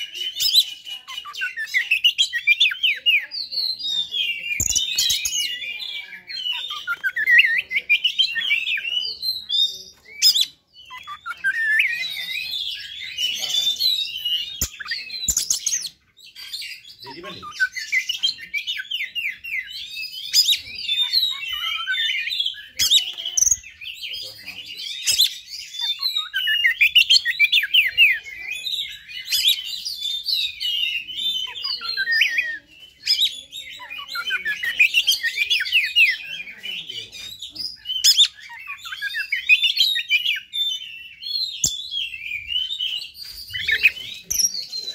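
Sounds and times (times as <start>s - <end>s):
bird singing whistled notes: 0.0s - 44.9s.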